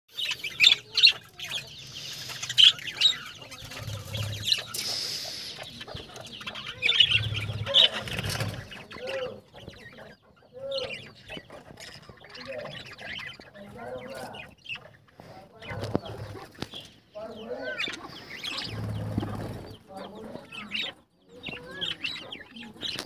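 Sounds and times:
budgerigars chirping: 0.1s - 23.0s
bumps and rustles of wings: 1.2s - 9.8s, 15.0s - 17.0s, 18.0s - 20.8s.

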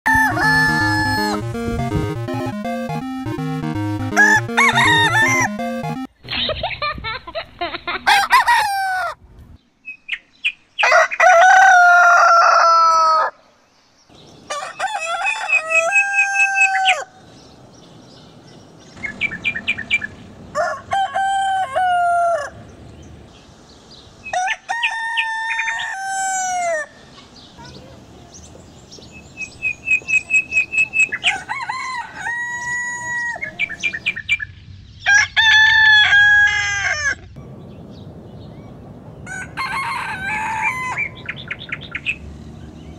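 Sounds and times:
roosters crowing: 0.1s - 1.5s, 4.2s - 5.8s, 8.1s - 9.2s, 10.8s - 13.4s, 14.4s - 17.3s, 19.0s - 22.8s, 24.2s - 27.0s, 31.1s - 34.2s, 35.1s - 37.2s, 39.2s - 41.6s.

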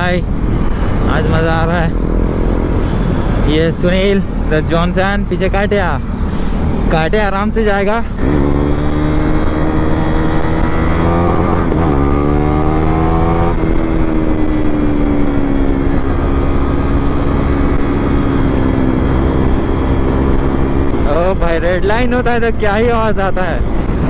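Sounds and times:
motorcycle engine accelerating: 8.0s - 21.6s.

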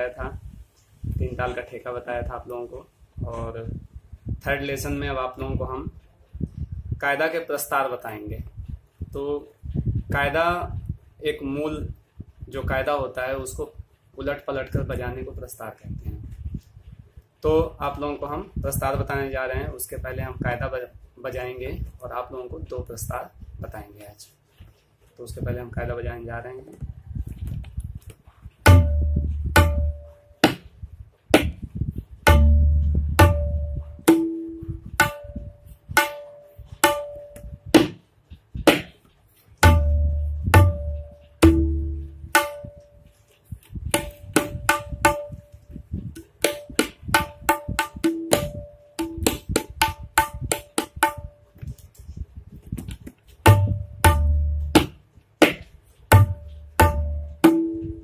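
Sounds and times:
deep bass drum strokes: 28.6s - 30.2s, 32.2s - 35.6s, 39.6s - 42.7s, 53.4s - 55.0s, 56.1s - 58.0s
sharp tabla strokes: 28.6s - 30.7s, 32.2s - 38.0s, 38.7s - 42.9s, 46.2s - 51.4s, 53.4s - 58.0s.

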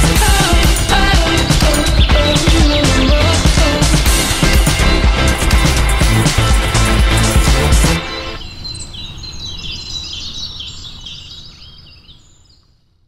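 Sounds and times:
rock music: 0.0s - 8.4s
birds chirping and singing: 0.0s - 12.8s.

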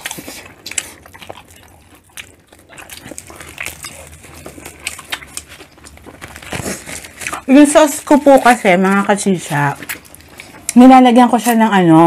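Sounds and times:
lip smacks: 0.0s - 7.5s
wet chewing: 0.0s - 12.0s.

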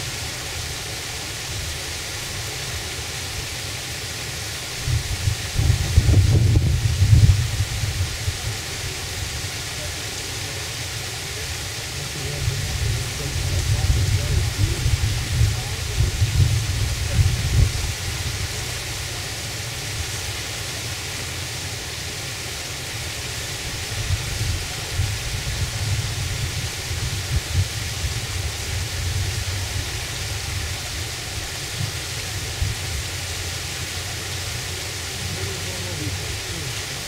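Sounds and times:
wind buffeting microphone: 4.8s - 9.5s, 12.0s - 20.1s, 23.6s - 36.8s.

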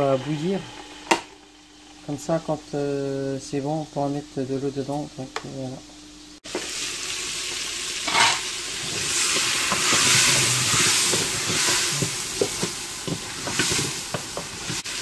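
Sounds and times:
vegetables sizzling in oil: 4.9s - 15.0s
wooden spoon knocking on pot: 9.4s - 14.6s.

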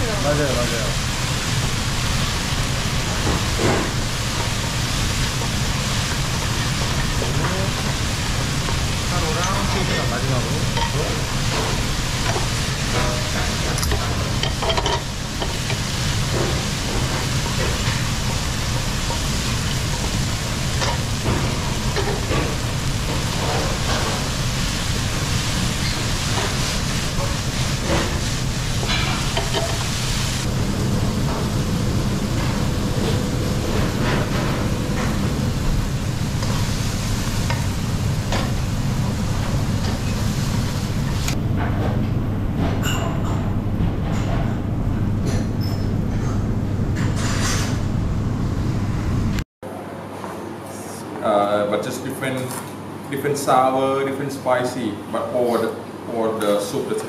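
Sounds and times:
food sizzling in a pan: 0.0s - 30.5s, 31.9s - 41.4s
steady low hum: 0.0s - 49.4s.

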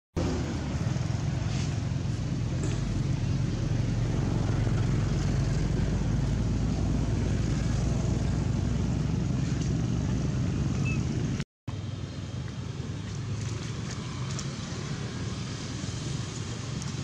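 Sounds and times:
low rumbling background noise: 0.2s - 17.0s.

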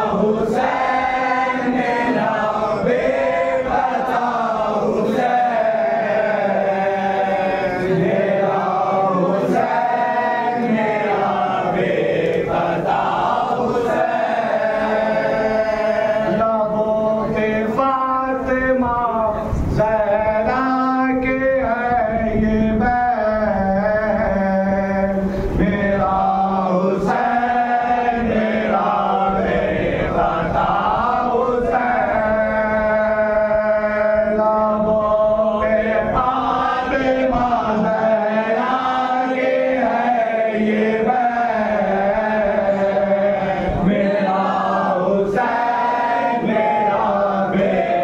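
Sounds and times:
men chanting in unison: 0.0s - 48.0s
man singing a lament: 13.8s - 48.0s.

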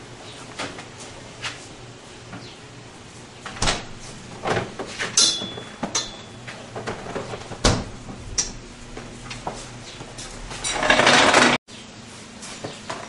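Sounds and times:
refrigerator door knocks and clunks: 3.6s - 4.8s, 6.9s - 8.3s
ringing clink: 5.2s - 6.4s.

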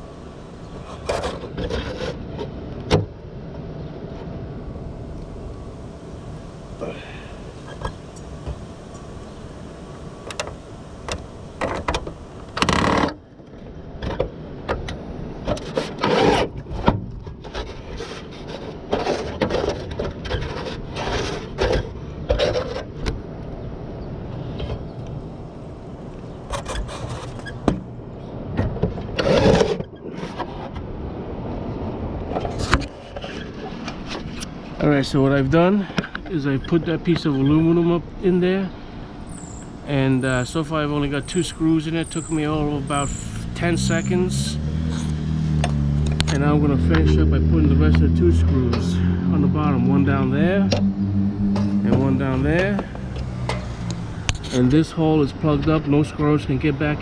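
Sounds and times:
sheet metal scraping against wood: 0.8s - 2.5s, 15.5s - 22.9s, 26.5s - 27.7s, 29.2s - 30.8s.

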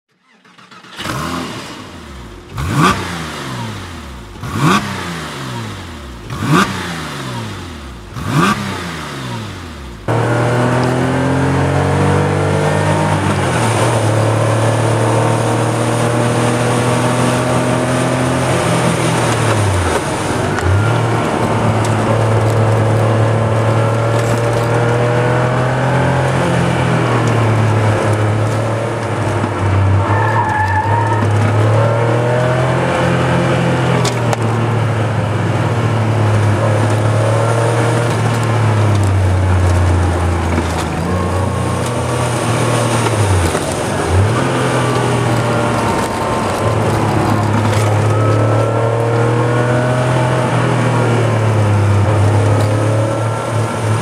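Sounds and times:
car engine revving: 0.1s - 54.0s
car engine heard from inside cabin: 31.3s - 54.0s.

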